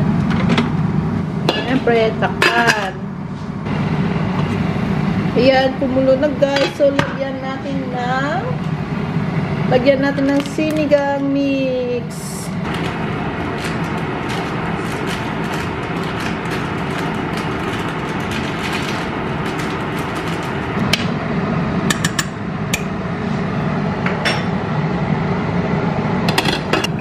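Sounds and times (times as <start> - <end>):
soup boiling and bubbling: 12.6 - 22.6.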